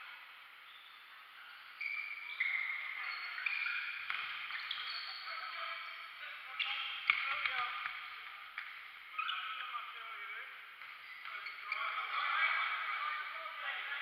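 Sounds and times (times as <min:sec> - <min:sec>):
shoes squeaking on hardwood floor: 0:01.6 - 0:08.0, 0:10.8 - 0:12.4.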